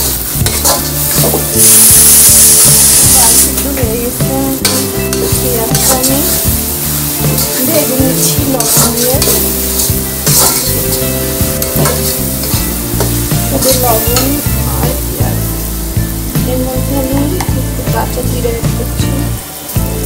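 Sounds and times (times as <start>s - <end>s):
onions sizzling in hot oil: 0.0s - 20.0s
spatula scraping metal pan: 0.4s - 3.8s, 4.6s - 14.8s.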